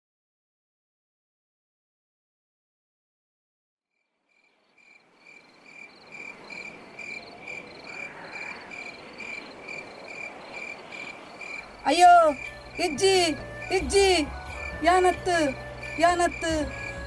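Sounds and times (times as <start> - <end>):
crickets chirping: 3.9 - 17.0.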